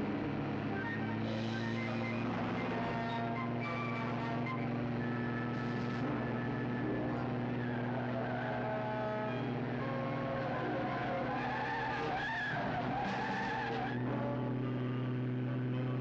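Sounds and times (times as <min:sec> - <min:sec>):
sports car engines droning: 0:00.0 - 0:16.0
tyres squealing: 0:07.4 - 0:14.0.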